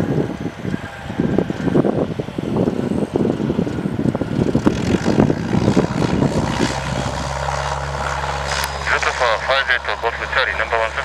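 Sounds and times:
wind noise on microphone: 0:00.0 - 0:08.7
propeller plane engine running: 0:00.0 - 0:11.0.

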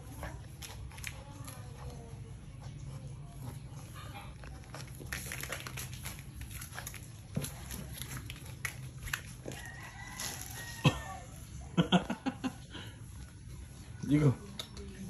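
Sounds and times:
dog claws on tiled floor: 0:00.0 - 0:10.8
rooster crowing: 0:09.4 - 0:11.4.

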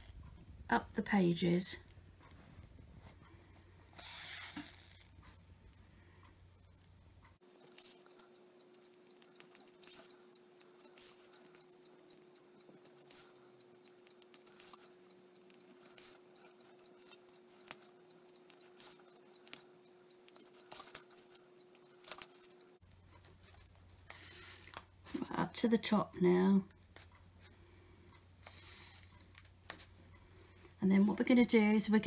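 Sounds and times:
faint steady hum: 0:00.0 - 0:32.0
needle clicking through paper: 0:20.2 - 0:22.7.

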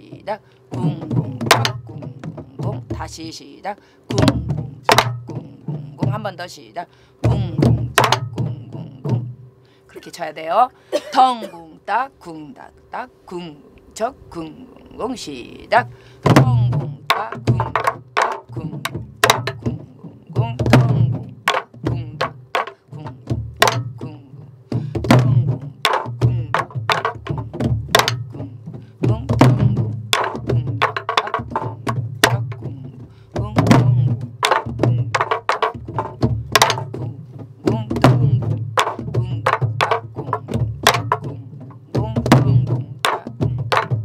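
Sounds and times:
deep drum booms: 0:00.7 - 0:03.3, 0:04.1 - 0:06.4, 0:07.2 - 0:09.5, 0:16.2 - 0:44.0
sticks cracking on drums: 0:16.2 - 0:19.8, 0:20.6 - 0:23.0, 0:24.7 - 0:37.0.

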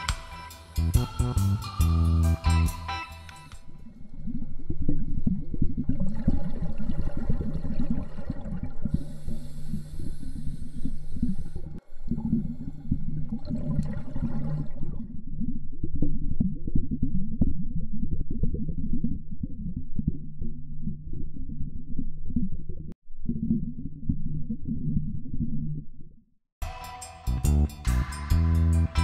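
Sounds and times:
underwater low rumbling: 0:03.7 - 0:26.2.

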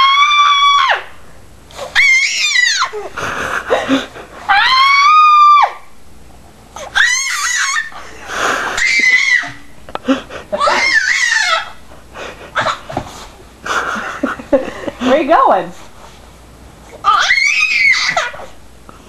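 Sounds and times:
baby screeching: 0:00.0 - 0:01.0, 0:01.8 - 0:03.0, 0:04.5 - 0:05.8, 0:06.8 - 0:08.0, 0:08.8 - 0:09.6, 0:10.6 - 0:11.8, 0:17.0 - 0:18.6.

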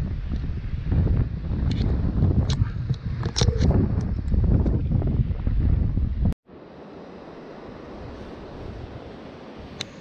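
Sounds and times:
wind buffeting microphone: 0:00.0 - 0:06.4.

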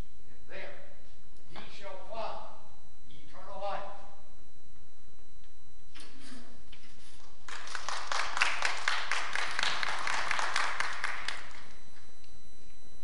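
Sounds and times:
audience applauding: 0:07.4 - 0:11.7.

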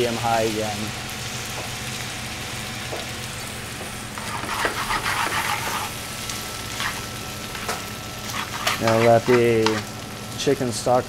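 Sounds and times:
rice sizzling in a pan: 0:00.0 - 0:11.0
metal utensil scraping a pan: 0:04.2 - 0:06.0, 0:06.8 - 0:09.9.

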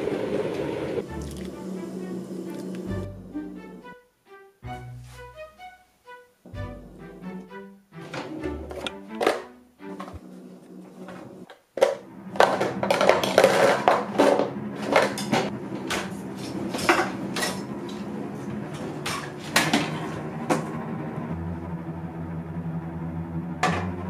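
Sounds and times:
metal pots and pans clattering: 0:08.0 - 0:10.2, 0:11.8 - 0:18.1, 0:18.7 - 0:20.7.

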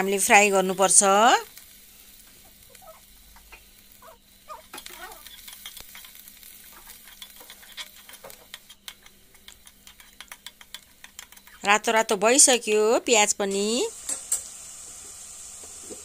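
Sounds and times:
onion sizzling in hot oil: 0:00.0 - 0:16.0.

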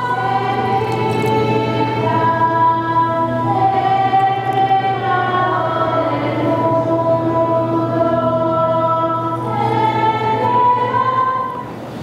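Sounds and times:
choir singing a hymn: 0:00.0 - 0:12.0.

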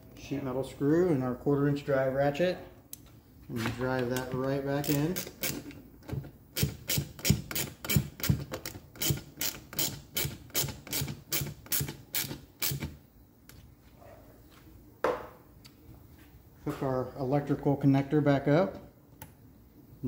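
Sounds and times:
ratchet clicking: 0:04.8 - 0:05.8, 0:06.6 - 0:12.9.

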